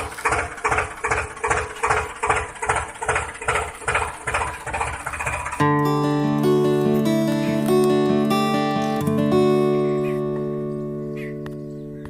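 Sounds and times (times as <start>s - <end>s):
tractor engine idling: 0.0s - 12.0s
strummed guitar music: 5.5s - 12.0s.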